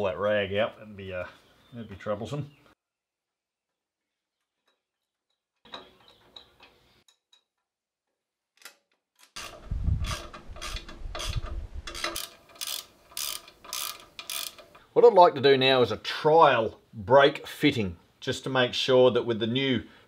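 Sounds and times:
ratchet wrench clicking: 0:09.2 - 0:14.8.

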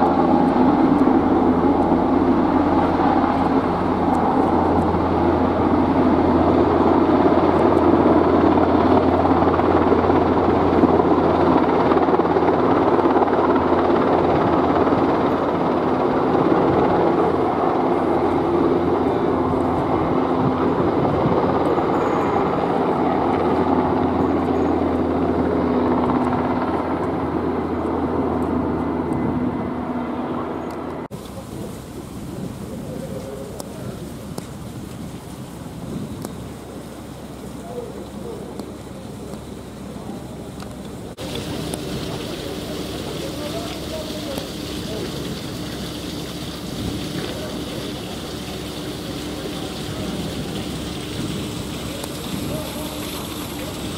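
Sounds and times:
helicopter rotor thrum: 0:00.0 - 0:29.9
turbine noise: 0:00.0 - 0:53.9.

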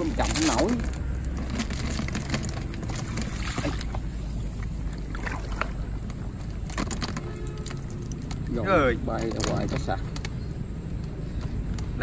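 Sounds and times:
fish trap clicks and rustles: 0:06.0 - 0:08.4.

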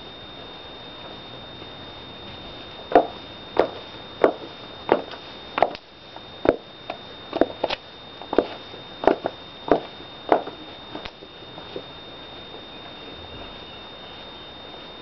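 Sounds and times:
high heel footsteps: 0:02.9 - 0:05.8, 0:07.4 - 0:11.1.

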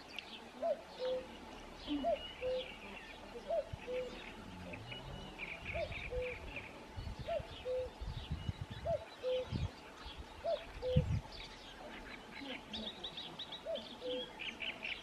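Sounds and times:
small birds chirping: 0:00.0 - 0:15.0
low rumbling: 0:01.2 - 0:12.0.

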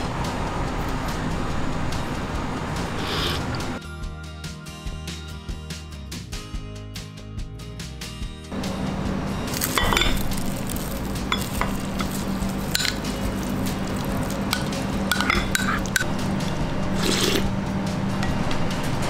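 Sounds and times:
restaurant hum and hiss: 0:00.0 - 0:03.8, 0:08.5 - 0:19.0
spoon scraping ceramic bowls: 0:03.0 - 0:03.6, 0:09.7 - 0:10.2, 0:11.3 - 0:16.2, 0:17.0 - 0:17.5.

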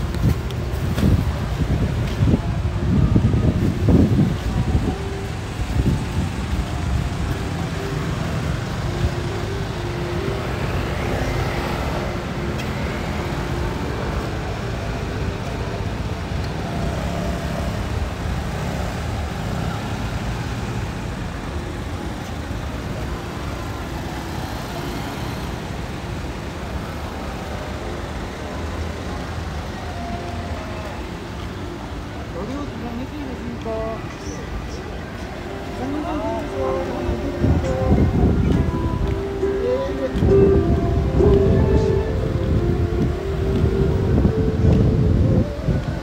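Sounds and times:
cars passing: 0:00.0 - 0:46.0
hum of engines and tyres: 0:00.0 - 0:46.0.

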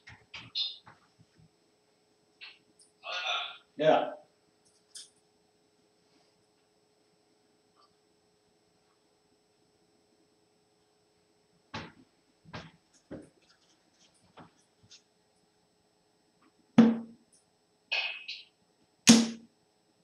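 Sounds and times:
darts thudding into dartboard: 0:16.8 - 0:17.2, 0:19.1 - 0:19.4.

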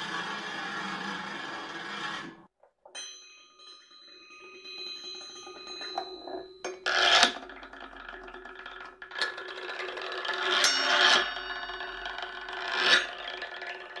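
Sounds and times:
metal ball rolling through tin tube: 0:00.0 - 0:14.0.

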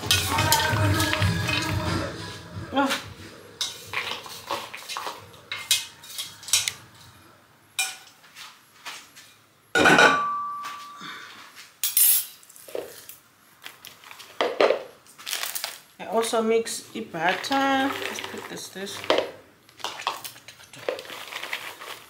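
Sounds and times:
pot and utensils clattering: 0:00.0 - 0:01.8, 0:03.6 - 0:07.1, 0:07.8 - 0:08.2, 0:09.8 - 0:13.1, 0:17.2 - 0:22.0
loud ringing metal clank: 0:09.8 - 0:11.0.

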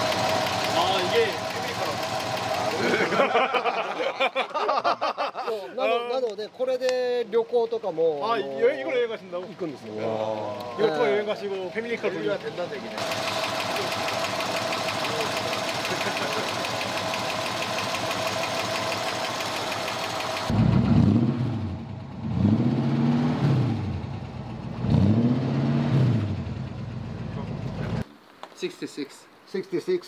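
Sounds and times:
engine revving: 0:00.0 - 0:03.2, 0:11.8 - 0:28.0
car engine idling with clatter: 0:00.0 - 0:03.8, 0:07.4 - 0:21.0.

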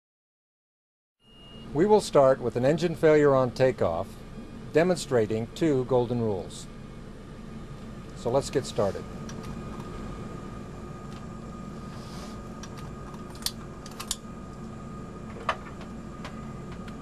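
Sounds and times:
faint high steady tone: 0:01.2 - 0:01.8
cockpit hum: 0:01.4 - 0:17.0.

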